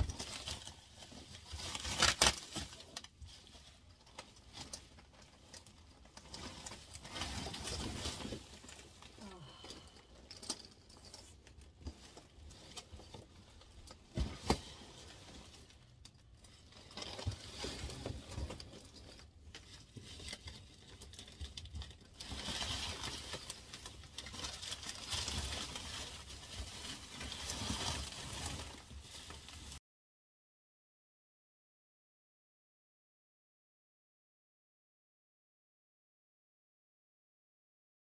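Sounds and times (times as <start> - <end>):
bubble wrap rustling and crinkling: 0.0 - 29.8.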